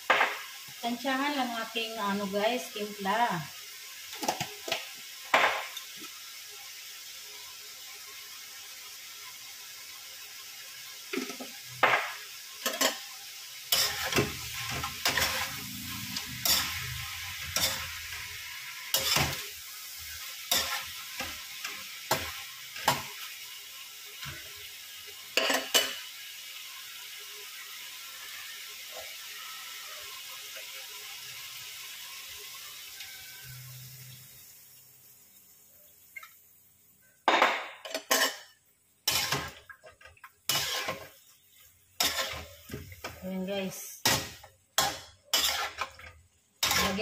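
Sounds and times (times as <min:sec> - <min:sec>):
chicken sizzling in pan: 0:00.0 - 0:47.0
metal spoon scraping wok: 0:13.7 - 0:19.5, 0:20.5 - 0:21.4, 0:37.9 - 0:38.5, 0:39.1 - 0:39.6, 0:40.5 - 0:41.2, 0:42.0 - 0:43.2, 0:44.0 - 0:47.0.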